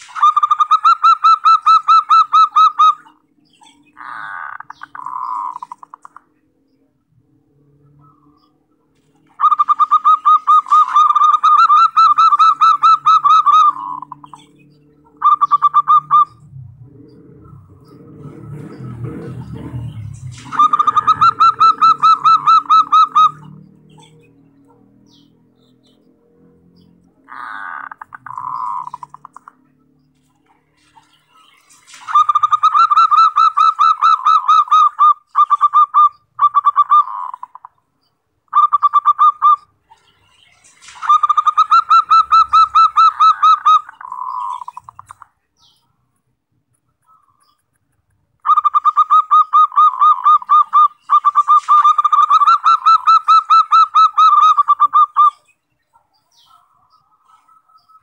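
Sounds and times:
dove pulsed cooing: 19.1 - 24.1, 48.5 - 55.3.

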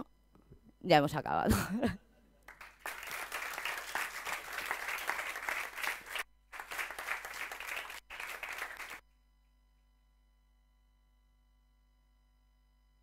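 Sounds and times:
audience applauding: 2.5 - 9.0.

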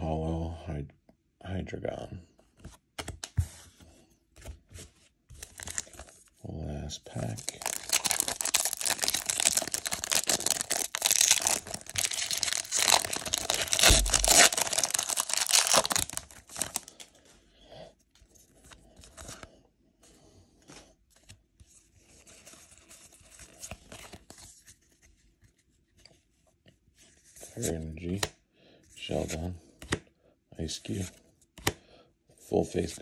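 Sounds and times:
cards rustling and tapping: 2.5 - 3.8, 7.4 - 17.0, 29.8 - 30.1
foil wrapper tearing: 7.4 - 17.0.

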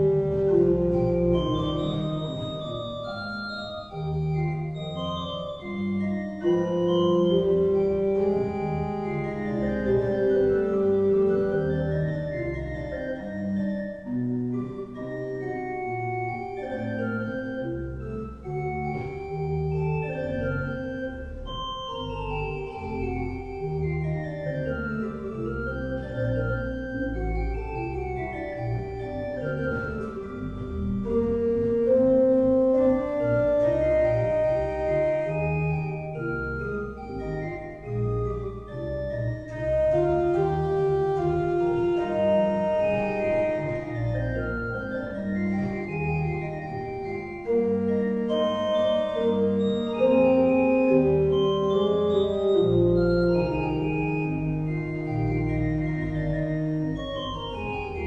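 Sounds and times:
organ music: 0.0 - 58.0.

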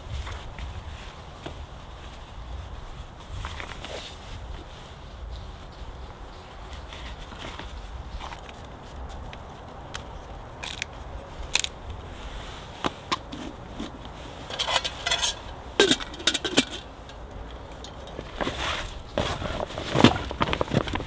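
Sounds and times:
metal cookware clinking: 14.5 - 17.2.

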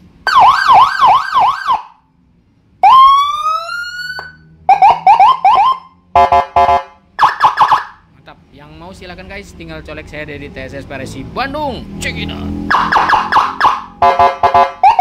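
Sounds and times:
buzzy siren blasts: 0.3 - 2.0, 2.8 - 8.0, 12.4 - 15.0
siren wail: 0.3 - 2.0, 2.8 - 8.0, 12.7 - 15.0
electronic siren warbling: 2.8 - 6.0, 12.5 - 15.0.

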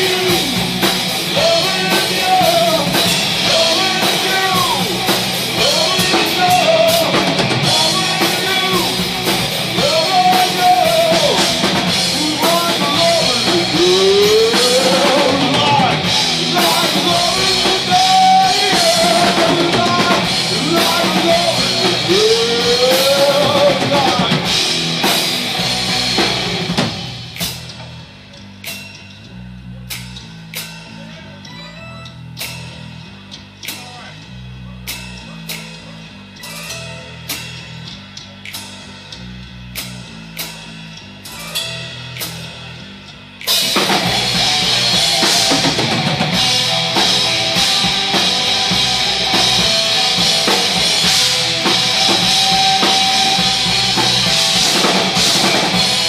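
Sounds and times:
drum hits: 0.0 - 27.9, 43.5 - 56.0
stepping bass line: 0.0 - 28.0, 41.1 - 56.0
live metal band playing: 0.0 - 56.0.

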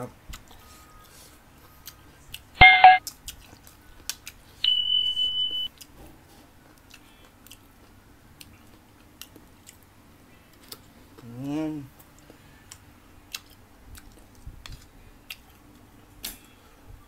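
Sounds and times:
high steady beep: 2.6 - 3.0, 4.6 - 5.7
notification chime: 2.6 - 3.0.

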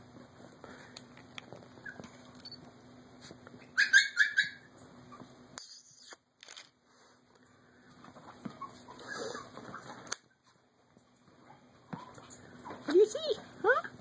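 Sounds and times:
puppy yipping: 1.8 - 2.1, 3.6 - 5.2.

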